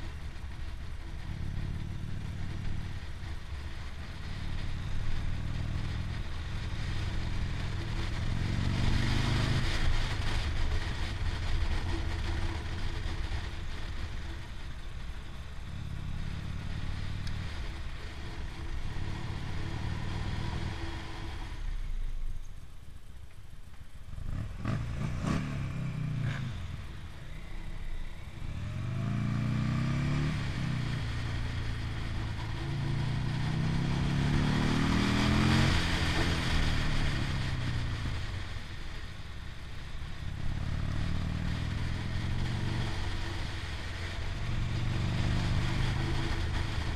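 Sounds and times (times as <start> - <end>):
motorcycle engine revving: 0.0 - 21.6, 24.0 - 39.2, 39.9 - 46.9.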